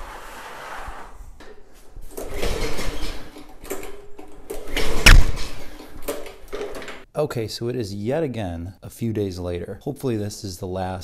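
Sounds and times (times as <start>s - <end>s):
mower engine cranked by pull cord: 2.1s - 7.0s.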